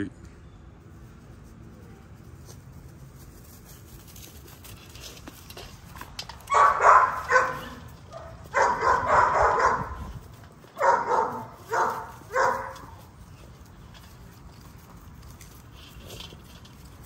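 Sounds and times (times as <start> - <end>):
puppies barking: 6.4 - 13.2.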